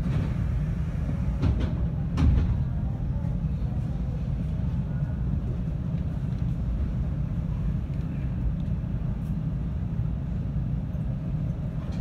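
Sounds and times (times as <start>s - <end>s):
electric train humming: 0.0s - 2.2s.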